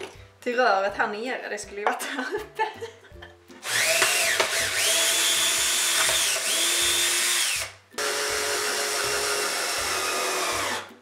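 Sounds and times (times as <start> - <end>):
cordless drill whining into wood: 3.6 - 10.9.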